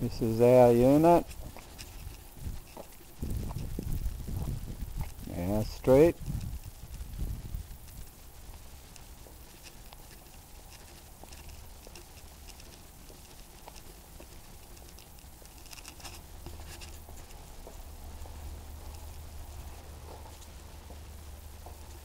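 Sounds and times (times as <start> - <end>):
faint footsteps: 0.0 - 22.0
low steady rumble: 0.0 - 22.0
camera handling ticks: 8.9 - 17.8.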